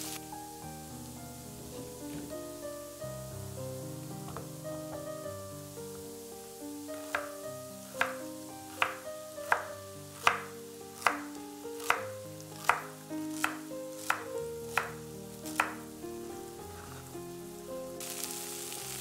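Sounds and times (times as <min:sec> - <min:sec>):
knife chopping celery on board: 0:07.0 - 0:15.8.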